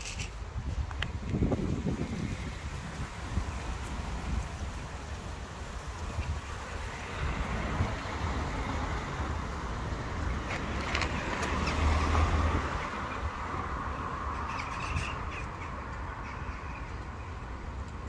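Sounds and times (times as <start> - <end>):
wind rumbling on microphone: 0.0 - 18.0
harsh bird calls: 14.0 - 17.4.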